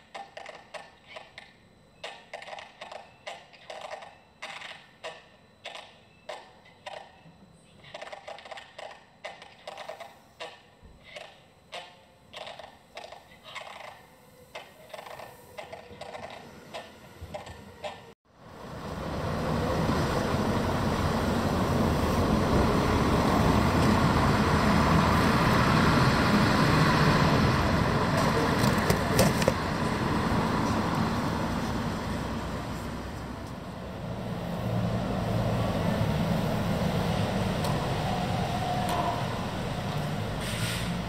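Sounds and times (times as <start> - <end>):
road traffic: 0.0 - 41.0.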